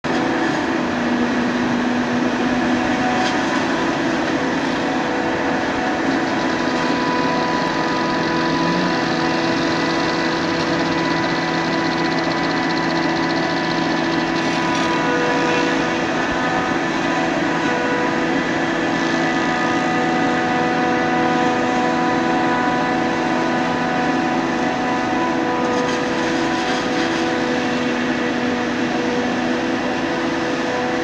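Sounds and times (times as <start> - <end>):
constant whining tones: 0.0 - 31.0
forage harvester engine drone: 0.0 - 31.0
rushing noise: 2.5 - 25.4.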